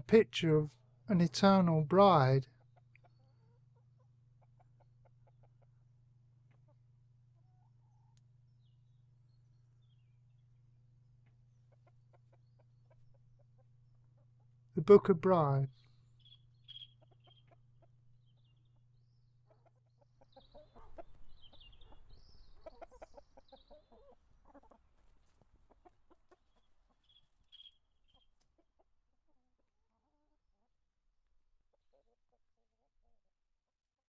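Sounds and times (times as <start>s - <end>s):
hen clucking: 2.5s - 8.2s, 11.2s - 14.6s, 16.2s - 18.8s, 19.4s - 30.7s
small birds chirping: 2.6s - 15.0s, 15.7s - 28.6s.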